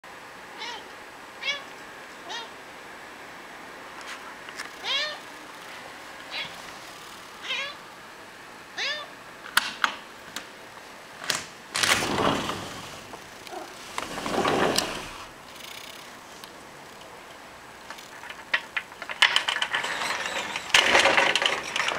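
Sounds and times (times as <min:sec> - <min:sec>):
cat meowing: 0:00.6 - 0:02.6, 0:04.8 - 0:05.2, 0:07.4 - 0:07.8, 0:08.8 - 0:09.1
rustling noises: 0:03.9 - 0:07.4, 0:11.7 - 0:21.9.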